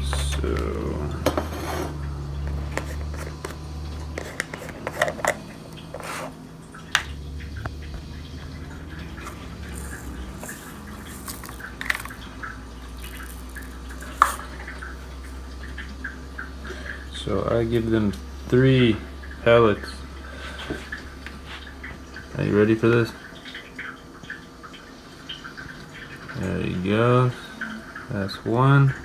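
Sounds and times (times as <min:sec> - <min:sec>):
low steady hum: 0:00.0 - 0:29.0
plastic tub opening: 0:09.2 - 0:12.2
pellets rattling into plastic cap: 0:09.7 - 0:12.2, 0:12.9 - 0:14.4.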